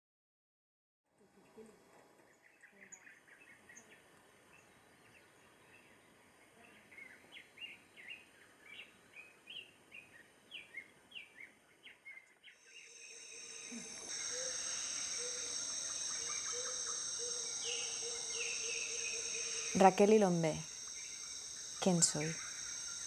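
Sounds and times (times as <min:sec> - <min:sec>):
bird chirping: 0:02.3 - 0:23.0
high insect drone: 0:12.6 - 0:23.0.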